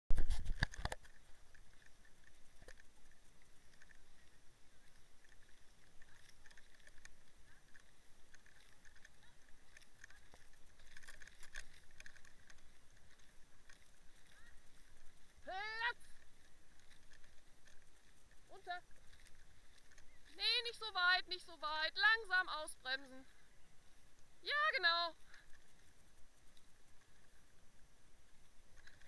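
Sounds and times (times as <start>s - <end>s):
footsteps through tall grass: 0.1s - 22.5s.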